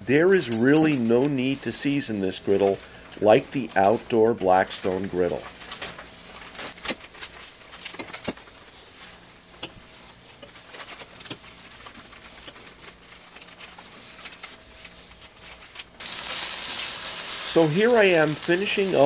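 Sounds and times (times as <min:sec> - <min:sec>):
paper towel wiping griddle: 0:08.5 - 0:15.8, 0:17.4 - 0:19.0.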